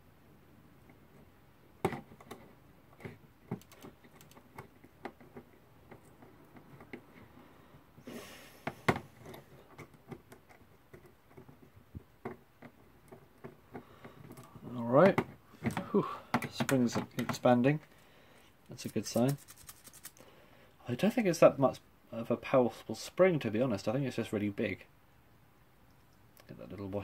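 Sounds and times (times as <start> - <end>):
brief rustle: 18.7 - 20.2.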